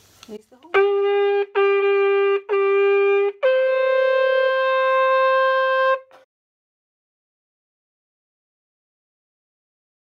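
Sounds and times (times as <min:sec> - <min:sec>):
trumpet fanfare: 0:00.7 - 0:06.3.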